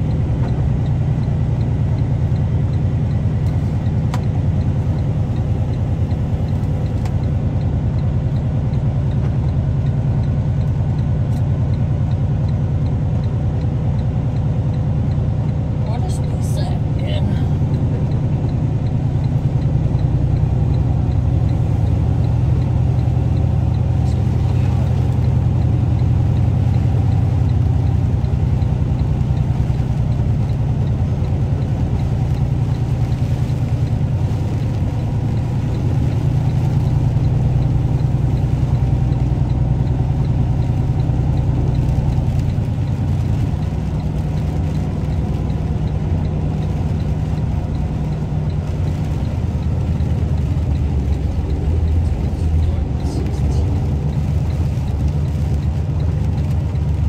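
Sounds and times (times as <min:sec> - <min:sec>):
diesel engine low drone: 0:00.0 - 0:57.0.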